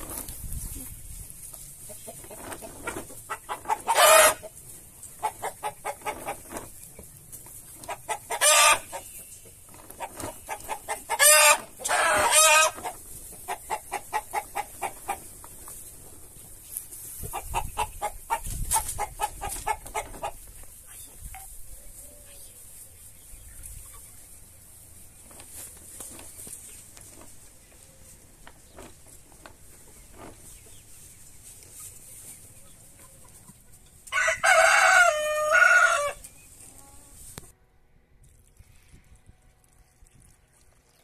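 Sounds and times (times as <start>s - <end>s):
chickens clucking: 0.0s - 37.5s
loud chicken calls: 3.3s - 4.5s, 7.8s - 9.1s, 10.5s - 15.2s, 34.1s - 36.3s.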